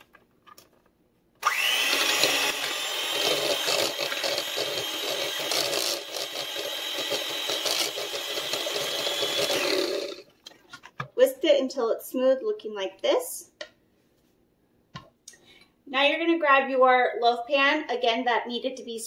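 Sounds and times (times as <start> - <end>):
electric hand mixer whining: 1.4 - 10.3.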